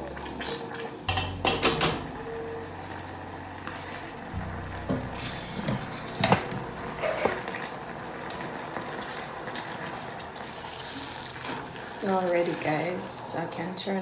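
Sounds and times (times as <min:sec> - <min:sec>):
steady low hum: 0:00.0 - 0:12.0
thick sauce bubbling in a saucepan: 0:07.0 - 0:13.7.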